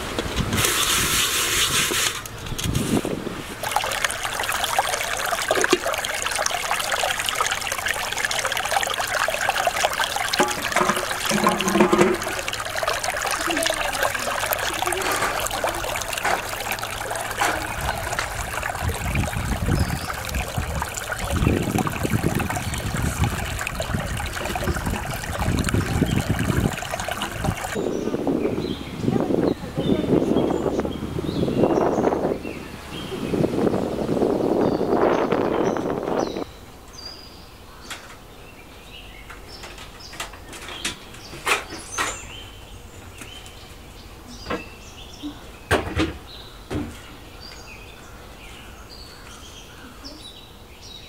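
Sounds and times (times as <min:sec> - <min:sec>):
stream trickling over stones: 0:00.4 - 0:27.9.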